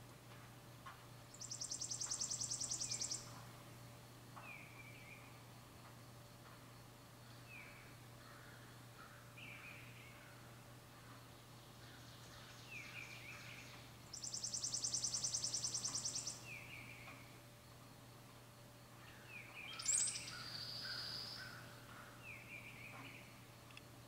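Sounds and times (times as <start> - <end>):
songbird fast dry trill: 14.1 - 16.4.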